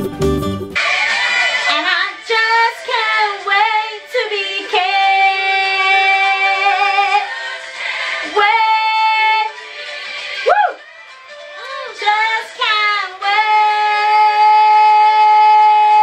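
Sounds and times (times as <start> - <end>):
woman singing: 1.6 - 7.3, 8.2 - 9.6, 11.6 - 16.0.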